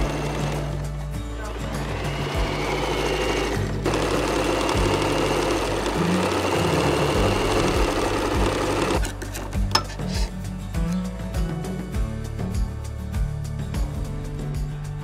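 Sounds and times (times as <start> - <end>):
sewing machine stitching: 0.0 - 0.8, 1.4 - 9.4
background music: 0.0 - 15.0.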